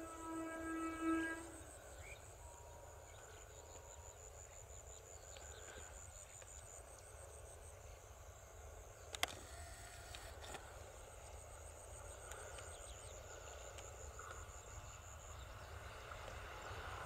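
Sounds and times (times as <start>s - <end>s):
distant train horn: 0.0s - 3.4s
high pulsing insect trill: 0.0s - 17.0s.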